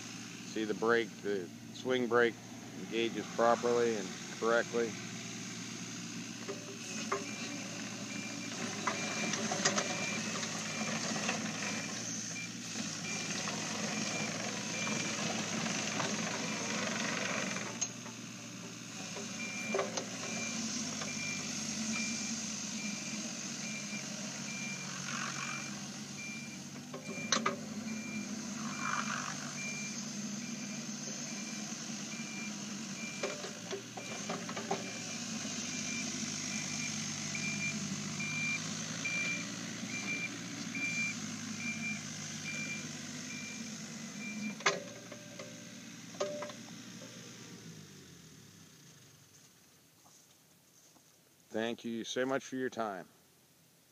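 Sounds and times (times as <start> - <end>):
excavator diesel engine running: 0.0 - 49.4
pulsed warning beep: 19.4 - 33.3, 35.7 - 43.6.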